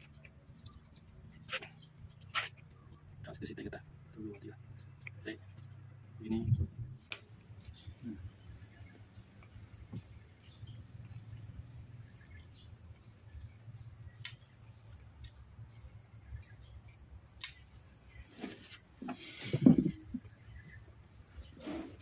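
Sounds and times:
insects chirping: 0.0 - 22.0
sharp clicks: 14.2 - 15.5, 17.4 - 17.7.

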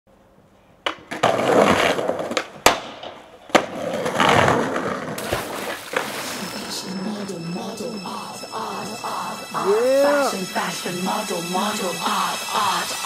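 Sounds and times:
skateboard clacks: 0.8 - 5.2
skateboard wheels rolling on paving: 0.8 - 6.9.

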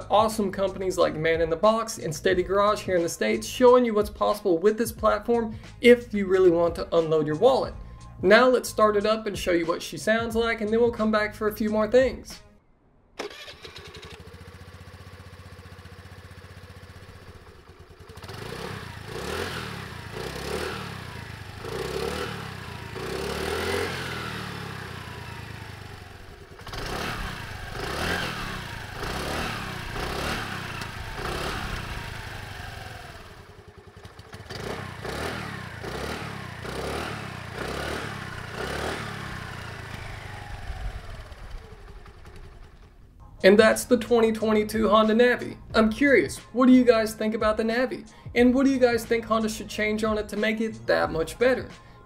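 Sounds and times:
small engine idling and revving: 5.4 - 5.8, 13.2 - 43.2.

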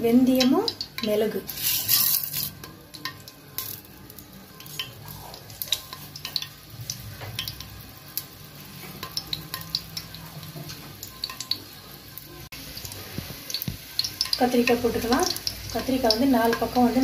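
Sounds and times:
seeds sizzling in oil: 0.0 - 17.0.

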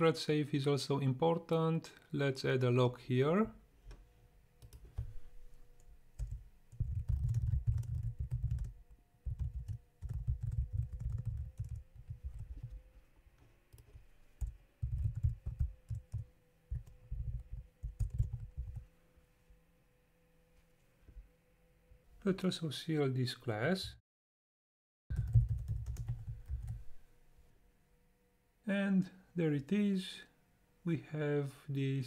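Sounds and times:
typing on computer keyboard: 6.2 - 12.8, 13.7 - 18.8, 25.1 - 26.8.

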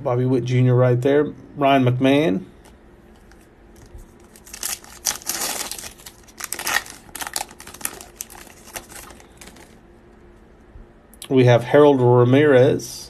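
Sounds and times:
foil wrapper tearing and crinkling: 3.2 - 9.8.

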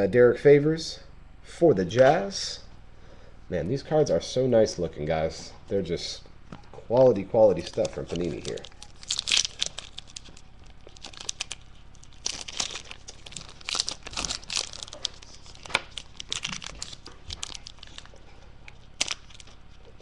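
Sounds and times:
foil wrapper crinkling: 7.0 - 20.0.

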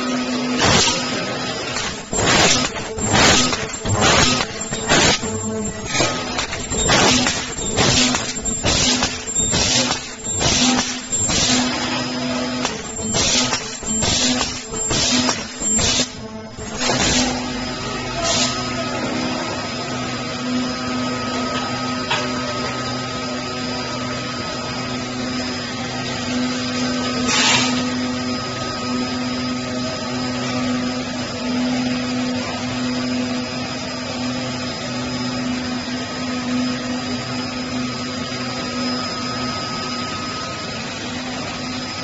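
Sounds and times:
cutting machine hum and whine: 0.0 - 42.0
sharp machine clicks: 1.7 - 11.8, 12.5 - 17.4.

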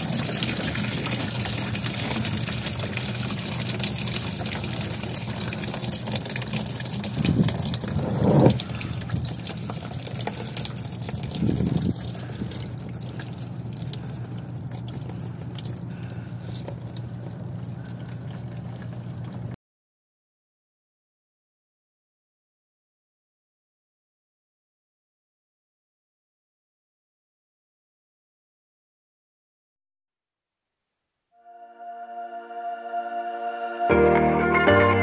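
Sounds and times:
coolant gushing and splashing: 0.0 - 19.6
low rush of liquid: 0.0 - 19.6.

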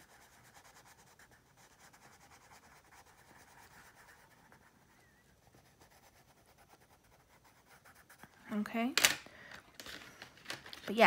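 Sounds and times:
colored pencil scratching on paper: 0.0 - 8.6.

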